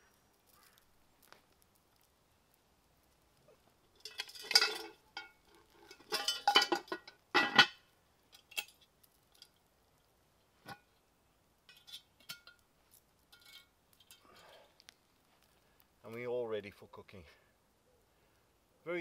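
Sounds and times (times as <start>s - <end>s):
pot lid clinking against chain: 5.9s - 7.7s.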